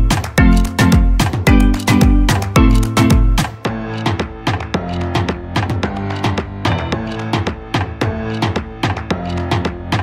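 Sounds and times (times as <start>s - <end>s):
upbeat background music: 0.0s - 10.0s.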